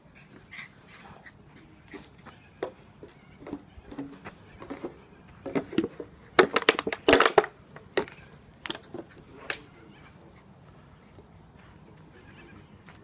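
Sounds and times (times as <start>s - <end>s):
plastic bottle crackling and crunching: 3.4s - 9.6s.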